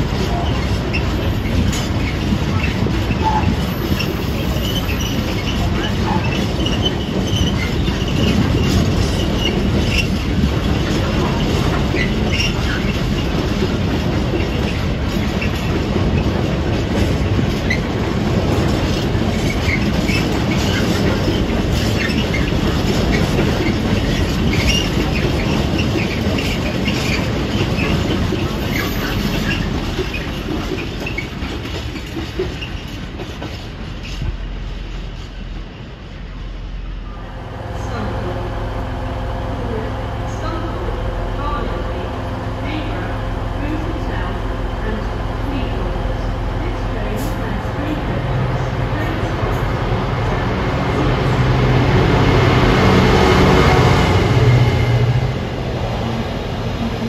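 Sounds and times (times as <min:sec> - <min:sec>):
freight train wheels rolling: 0:00.0 - 0:57.0
wheel squeals and clicks: 0:00.2 - 0:13.4, 0:18.9 - 0:34.3.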